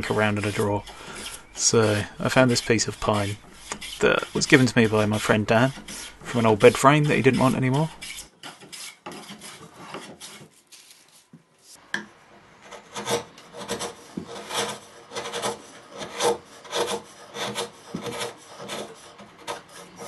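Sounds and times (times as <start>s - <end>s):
blade scraping wood: 0.0s - 11.8s, 12.6s - 20.0s.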